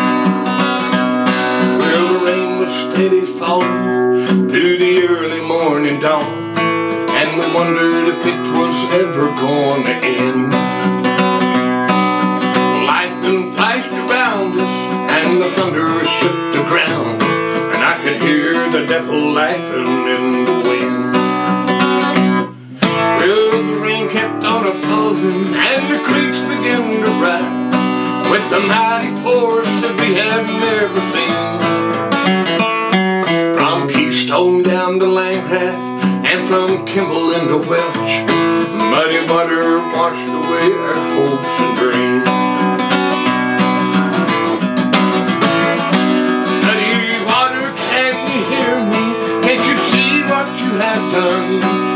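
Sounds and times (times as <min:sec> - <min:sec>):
acoustic guitar music: 0:00.0 - 0:51.9.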